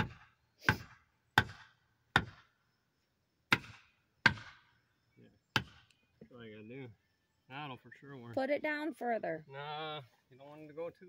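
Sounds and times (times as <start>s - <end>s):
hammer striking wooden board: 0.0s - 2.4s, 3.5s - 4.6s.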